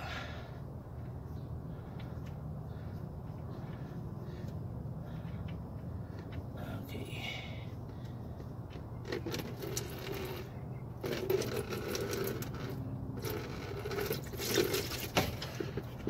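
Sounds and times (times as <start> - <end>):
oil draining into plastic bucket: 11.0 - 15.8.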